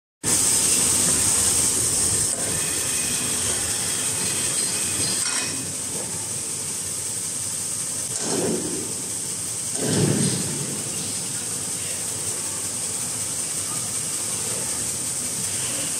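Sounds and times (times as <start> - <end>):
cutting machine whirring: 0.3 - 6.6.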